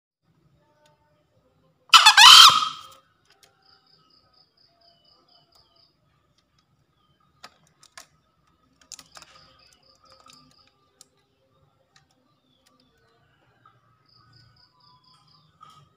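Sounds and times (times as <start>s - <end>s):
faint clicks and taps: 6.3s - 13.2s.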